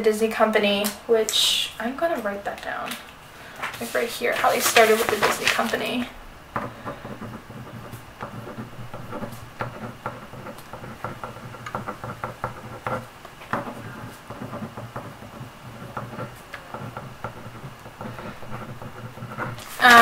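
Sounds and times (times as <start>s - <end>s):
pen scratching on paper: 3.9s - 6.0s, 6.6s - 20.0s.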